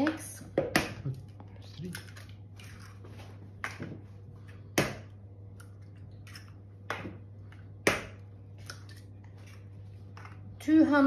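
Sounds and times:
eggs cracked against plastic bowl: 0:04.7 - 0:09.1.

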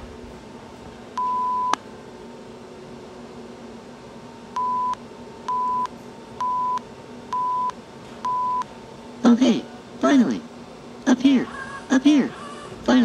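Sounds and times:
faint steady hum: 0:00.0 - 0:13.0
electronic countdown beeps: 0:01.2 - 0:01.8, 0:04.6 - 0:08.7.

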